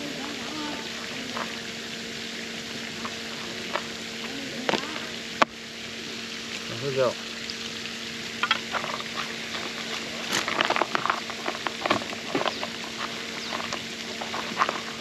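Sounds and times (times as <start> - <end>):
faint steady hum: 0.0 - 15.0
wet bait squishing: 8.6 - 15.0.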